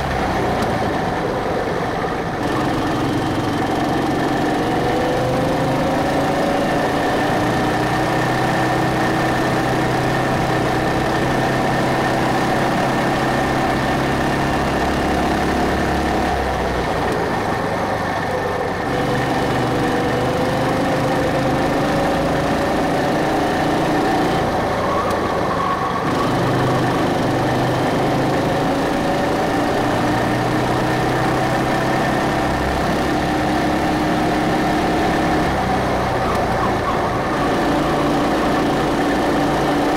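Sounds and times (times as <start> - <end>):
go-kart engine under throttle: 0.0 - 39.9.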